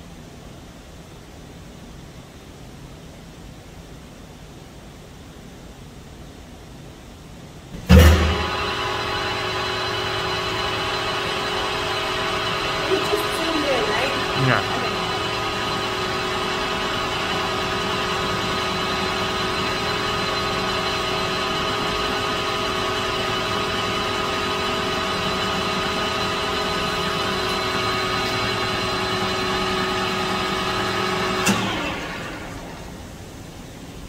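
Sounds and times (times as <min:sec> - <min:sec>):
lathe motor and gear hum: 0:07.8 - 0:33.1.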